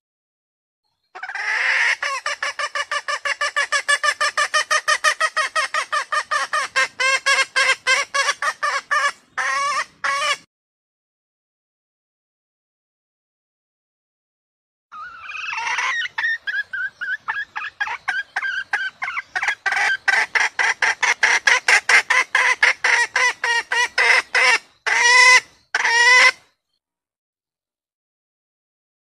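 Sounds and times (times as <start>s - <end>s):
hen clucking and calling: 1.1s - 10.5s, 14.9s - 26.5s.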